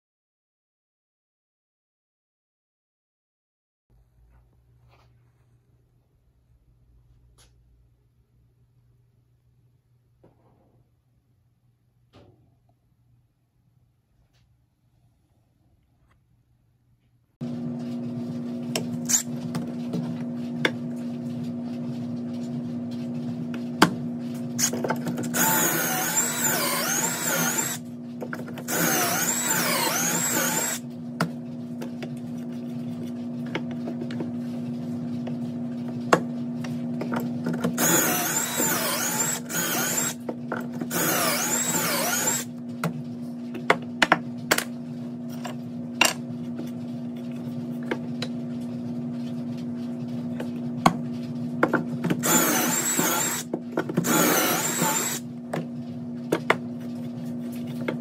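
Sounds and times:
cordless drill boring into wood: 25.4s - 27.8s, 28.7s - 30.8s, 37.8s - 40.2s, 40.9s - 42.5s, 52.2s - 55.2s.

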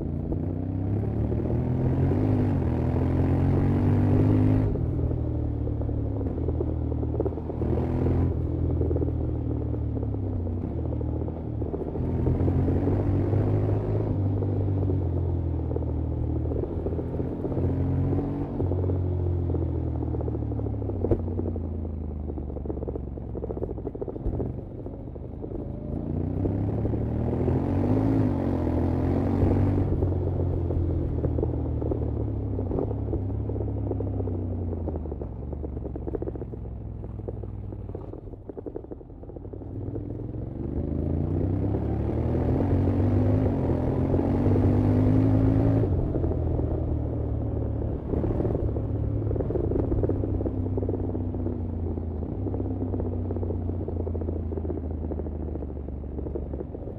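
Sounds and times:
motorcycle engine accelerating: 0.0s - 56.9s.

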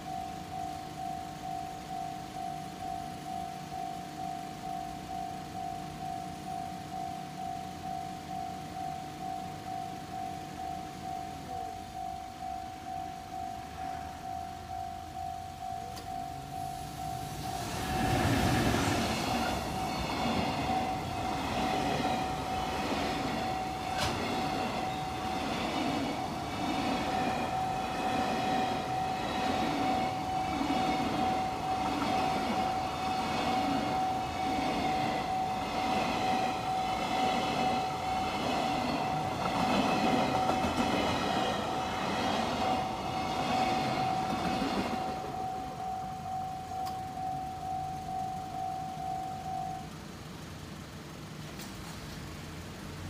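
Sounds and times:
level crossing warning bell: 0.0s - 51.4s
freight train wheels clattering: 15.8s - 47.6s.

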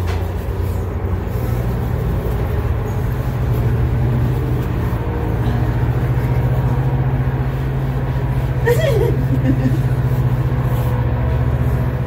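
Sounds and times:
motor running low rumble: 0.0s - 12.0s.

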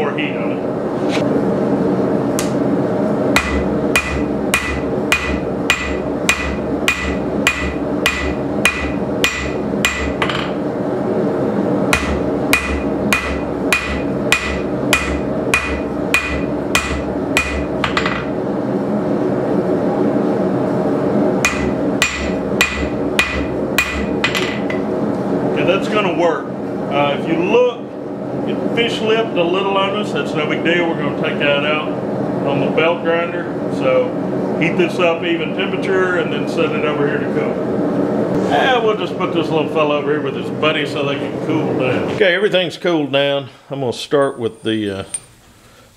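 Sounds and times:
hammer ringing on anvil: 3.4s - 10.5s, 12.0s - 18.3s, 21.4s - 24.7s.

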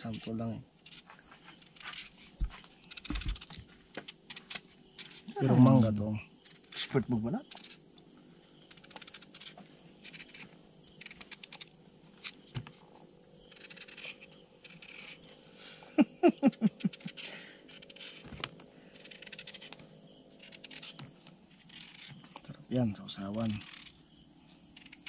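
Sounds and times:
insects chirping: 0.0s - 25.0s
faint knife scraping: 13.4s - 15.4s.

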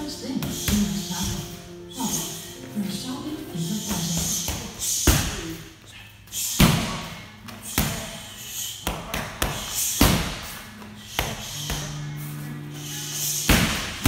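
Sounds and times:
background music: 0.0s - 5.8s, 9.8s - 14.0s.

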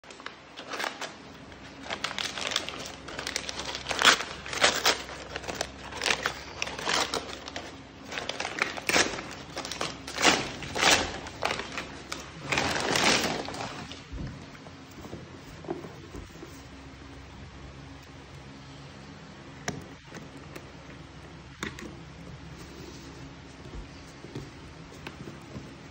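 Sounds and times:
paper bag crinkling and tearing: 0.0s - 14.1s.

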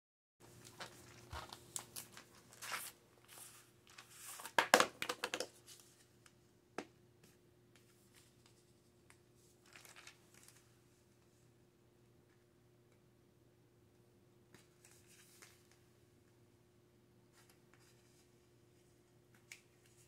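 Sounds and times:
crinkling plastic jar: 9.6s - 10.6s.

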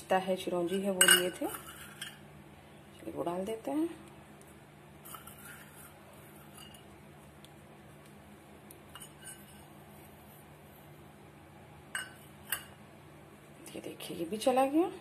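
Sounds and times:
low steady hum: 0.0s - 15.0s
dishes clinking on counter: 1.0s - 2.2s, 12.0s - 12.8s.

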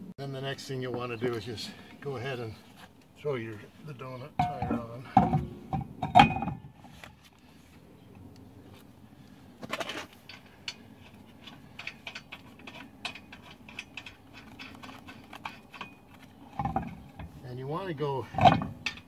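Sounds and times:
metal clicks and taps of lug nuts: 10.2s - 17.3s.

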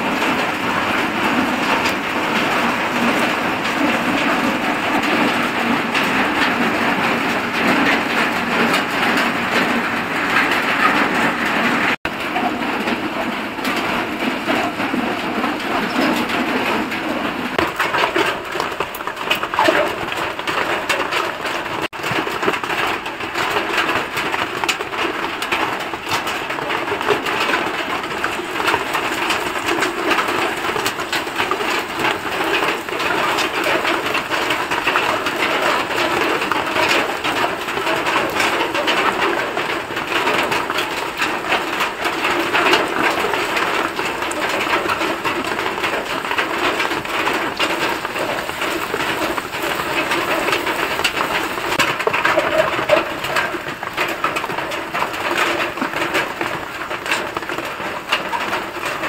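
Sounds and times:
fish sizzling in hot oil: 27.2s - 55.2s.

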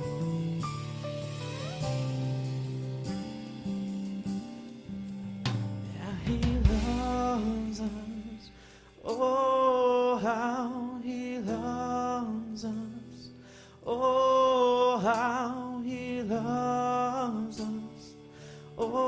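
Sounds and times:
soft sustained accompaniment: 0.0s - 13.4s
person singing with vibrato: 6.0s - 19.0s.

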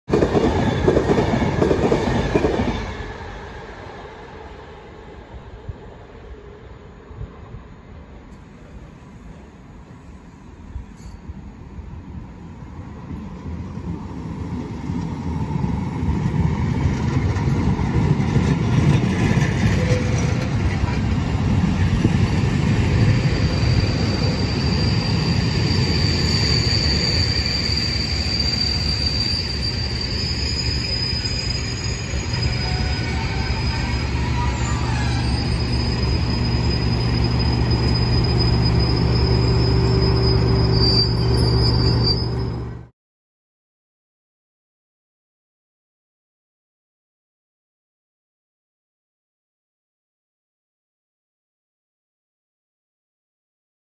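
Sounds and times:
diesel locomotive engine: 0.1s - 42.9s
high wheel squeal: 22.9s - 42.9s.

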